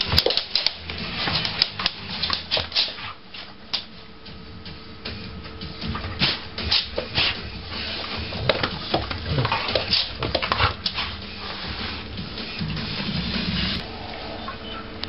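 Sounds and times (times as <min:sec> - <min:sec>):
animals scuffling: 0:00.0 - 0:04.0, 0:05.8 - 0:13.2.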